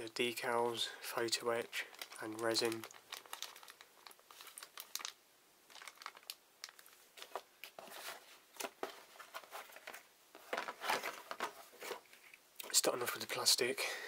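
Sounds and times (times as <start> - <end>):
plastic bags crinkling: 1.3 - 12.4
paper sheets rustling: 5.7 - 12.2.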